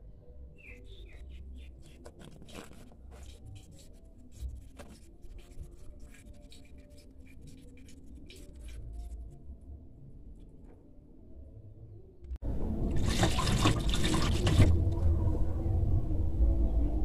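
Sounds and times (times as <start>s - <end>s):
low rumble: 12.2s - 17.0s.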